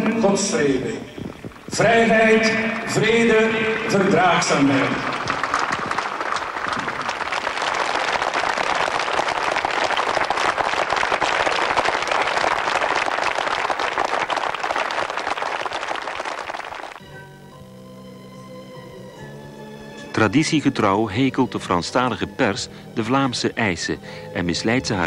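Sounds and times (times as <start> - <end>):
crowd applauding: 1.3 - 17.0
music with held notes: 17.0 - 25.0.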